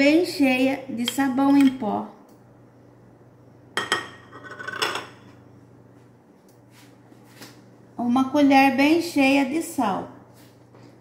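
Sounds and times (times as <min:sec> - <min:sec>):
faint low hum: 0:00.0 - 0:11.0
ladle and plate set on countertop: 0:00.6 - 0:02.0, 0:03.8 - 0:05.4.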